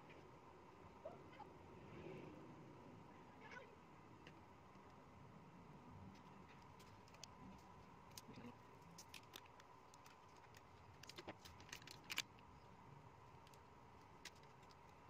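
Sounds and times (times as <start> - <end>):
faint steady hum: 0.0 - 15.0
plastic phone parts clicking: 9.0 - 12.3.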